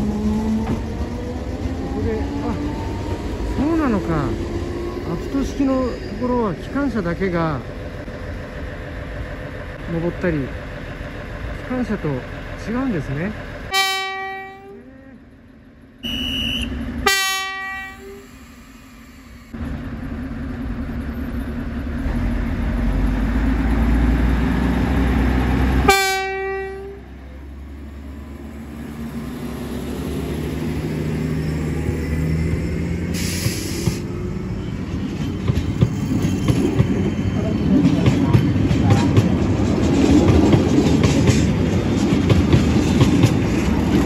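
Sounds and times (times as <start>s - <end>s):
diesel engine rumble: 0.0s - 13.8s, 18.0s - 44.0s
train coaches rolling by: 0.0s - 44.0s
train horn blasts: 13.7s - 14.8s, 16.0s - 18.3s, 25.8s - 27.0s.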